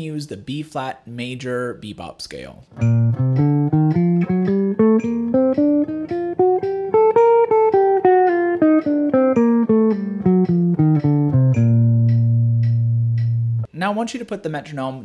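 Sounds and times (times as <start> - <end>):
jazz guitar playing a scale: 2.7 - 13.7.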